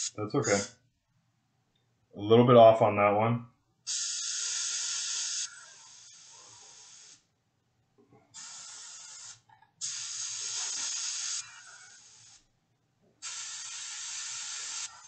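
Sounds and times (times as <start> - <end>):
airbrush hissing bursts: 0.0 - 0.7, 3.9 - 7.3, 8.4 - 12.5, 13.2 - 15.0.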